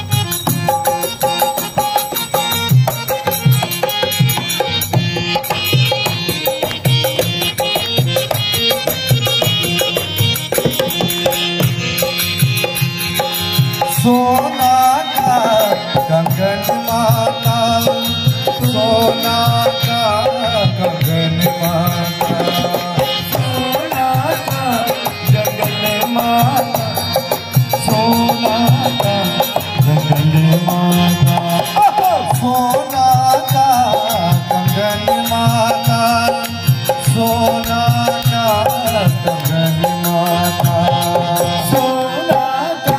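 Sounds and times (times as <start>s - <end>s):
hand drum rhythm: 0.0s - 42.9s
harmonium melody: 0.0s - 42.9s.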